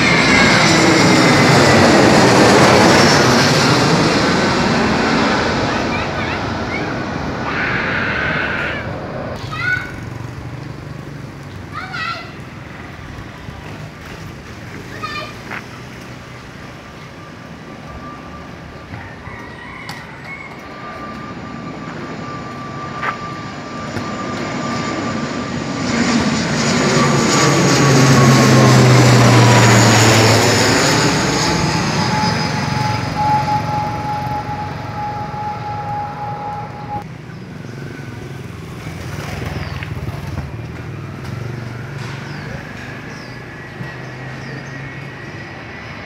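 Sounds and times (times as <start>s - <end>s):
high whine dropping in pitch: 0.0s - 9.4s, 20.5s - 37.1s
turboprop airliner passing overhead: 0.0s - 46.0s.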